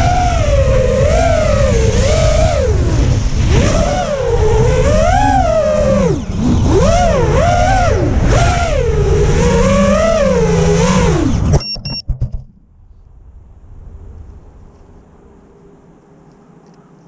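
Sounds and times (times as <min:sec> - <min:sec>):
drone motors whining: 0:00.0 - 0:12.1
wind rushing on microphone: 0:00.0 - 0:16.0.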